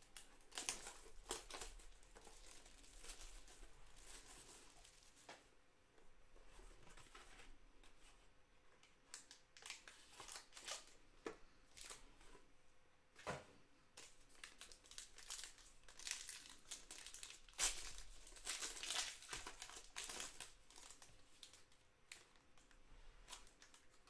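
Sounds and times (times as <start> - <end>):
foil packs crinkling: 0.1 - 5.2, 14.0 - 22.7.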